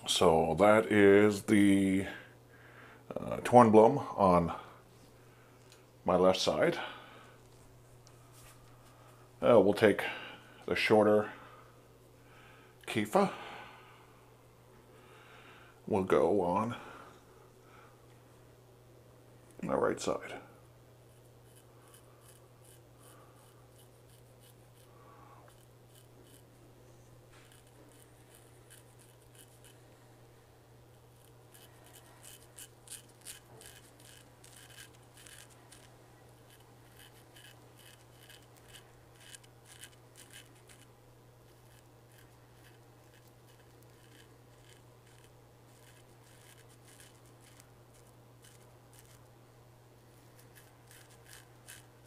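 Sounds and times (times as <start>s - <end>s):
steady low hum: 0.0s - 52.0s
razor scraping stubble: 21.1s - 30.2s, 30.9s - 49.3s, 50.1s - 52.0s.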